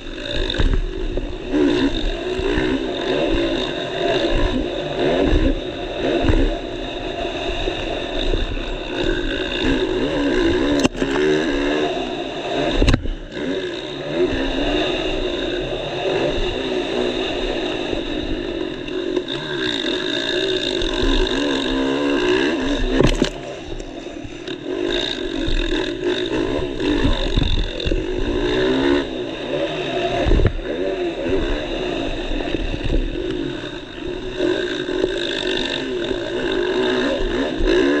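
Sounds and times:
motocross bike engine revving: 0.0 - 38.0
sharp thumps: 22.9 - 23.9.

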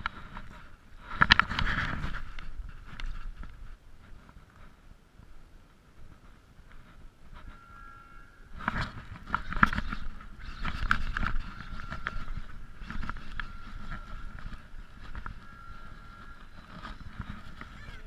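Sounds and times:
thin steady whine: 0.0 - 18.0.

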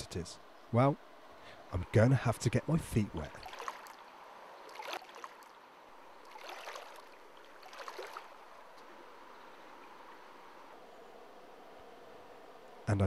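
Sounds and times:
faint stream rushing: 0.0 - 13.0
legs sloshing through water: 3.3 - 4.0, 4.6 - 8.9.

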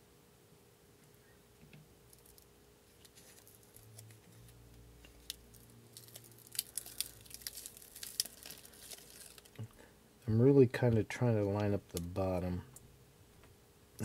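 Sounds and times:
adhesive backing crackling: 1.6 - 9.9.

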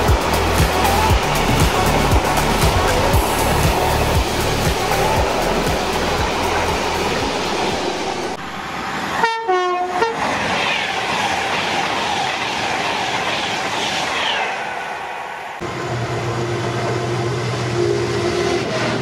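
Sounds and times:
train rushing past: 0.0 - 19.0
two-note train horn: 9.2 - 10.2.

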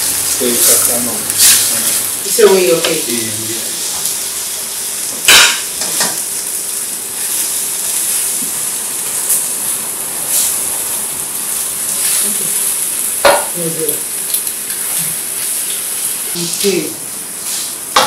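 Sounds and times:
food sizzling in a frying pan: 0.0 - 18.0
utensil knocking against pan: 13.2 - 13.5.

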